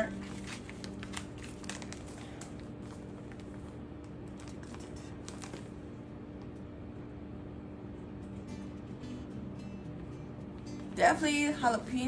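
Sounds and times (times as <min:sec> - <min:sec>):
paper and plastic crinkling: 0:00.0 - 0:05.9.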